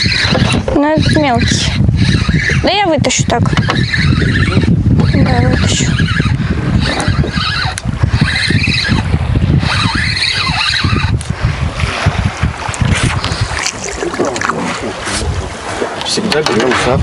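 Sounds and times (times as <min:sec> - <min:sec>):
fishing reel winding: 0:00.0 - 0:11.3
waves slapping boat hull: 0:00.0 - 0:17.0
wind rumbling on microphone: 0:00.0 - 0:17.0.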